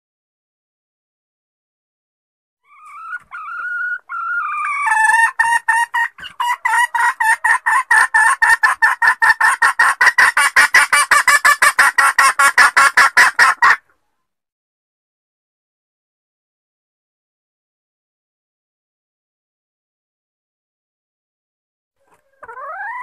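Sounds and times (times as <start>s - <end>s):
hen calling and clucking: 2.6s - 14.1s, 22.0s - 23.0s.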